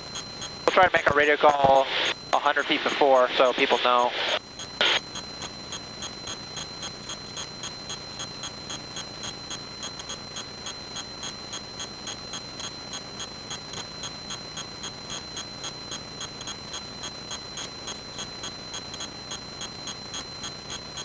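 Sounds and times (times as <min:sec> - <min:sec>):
high electrical whine: 0:00.0 - 0:21.0
regular electrical ticking: 0:00.1 - 0:10.4.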